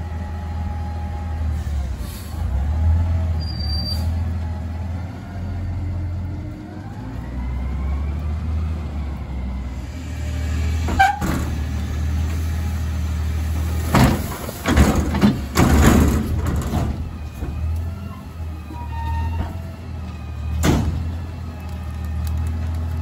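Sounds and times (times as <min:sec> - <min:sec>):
garbage truck idling: 0:09.2 - 0:23.0.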